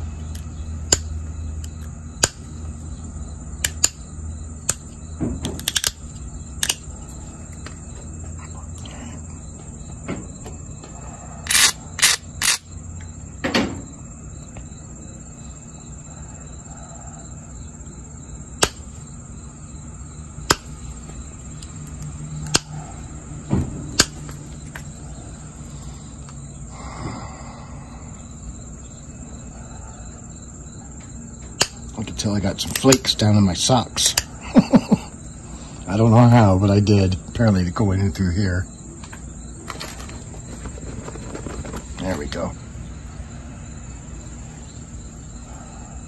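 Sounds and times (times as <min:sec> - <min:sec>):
stone flakes snapping clicks: 0:00.9 - 0:02.4
rustling knocks of handling: 0:39.1 - 0:42.2.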